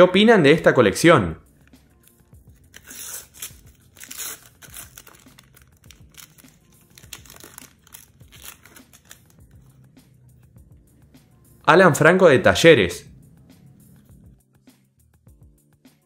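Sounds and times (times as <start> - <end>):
wrapper crinkling: 2.6 - 9.7
foil packet tearing: 2.7 - 9.4.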